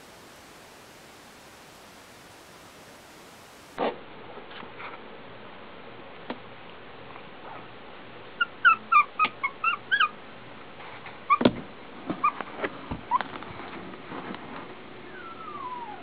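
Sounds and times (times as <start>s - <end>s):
steady faint hiss: 0.0s - 8.4s
puppies squeaking and whimpering: 8.4s - 10.2s, 12.2s - 12.4s, 15.1s - 16.0s.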